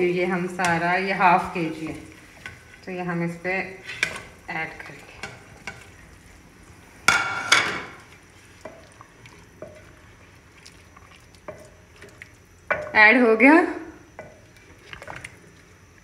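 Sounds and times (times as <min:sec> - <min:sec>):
wooden spoon stirring: 0:00.0 - 0:06.7, 0:07.4 - 0:13.0, 0:14.1 - 0:15.8
plate scraping on metal pot: 0:07.1 - 0:08.0.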